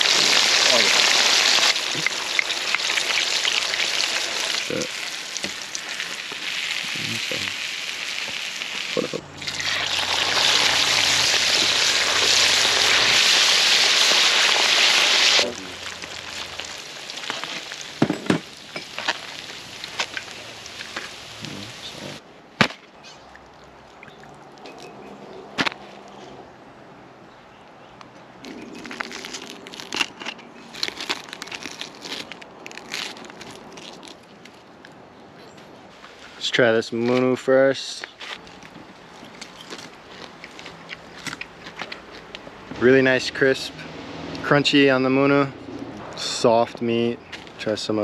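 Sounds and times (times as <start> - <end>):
fish sizzling in hot oil: 0.0 - 22.2.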